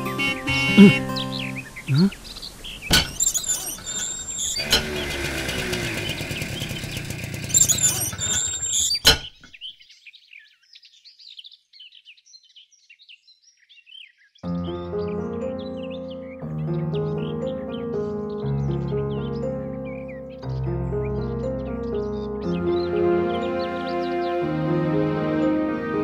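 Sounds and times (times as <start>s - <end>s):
faint bird chirps: 0.0s - 4.7s, 5.9s - 16.4s
steady mechanical noise: 2.9s - 9.2s
sharp metal clanks: 2.9s - 9.5s.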